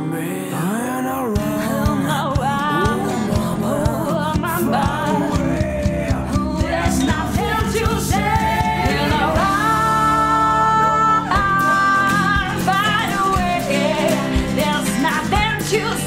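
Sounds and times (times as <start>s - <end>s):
guitar: 0.0s - 16.0s
person singing: 0.0s - 16.0s
steady beat: 1.4s - 10.0s.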